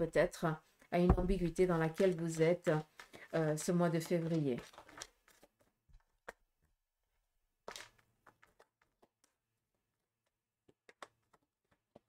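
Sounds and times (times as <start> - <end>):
card deck rustling: 1.2 - 3.2, 3.9 - 6.4, 7.6 - 12.0.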